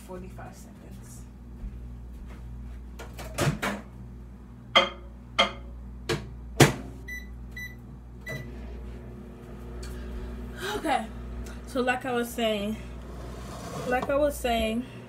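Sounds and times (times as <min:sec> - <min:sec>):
steady low hum: 0:00.0 - 0:03.2, 0:03.8 - 0:15.0
keypad beeps: 0:07.1 - 0:08.4.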